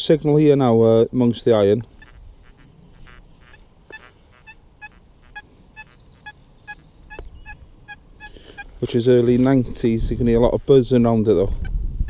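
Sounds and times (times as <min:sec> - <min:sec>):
metal detector buzzing: 0:01.8 - 0:08.9, 0:10.1 - 0:11.8.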